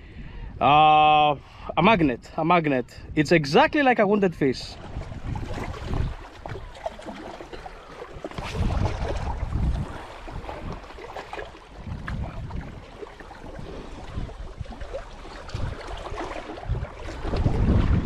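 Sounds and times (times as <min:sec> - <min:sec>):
wind buffeting microphone: 0:00.0 - 0:18.0
waves washing against rocks: 0:04.8 - 0:18.0.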